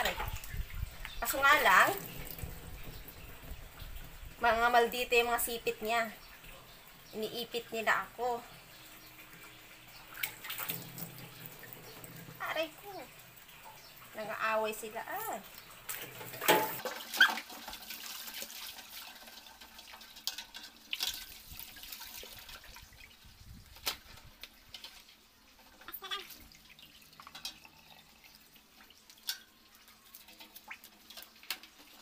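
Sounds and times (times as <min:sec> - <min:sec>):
tap water splashing into basin: 0:00.0 - 0:04.4, 0:09.4 - 0:12.4, 0:15.5 - 0:23.1
knocks against metal basin: 0:16.3 - 0:16.8.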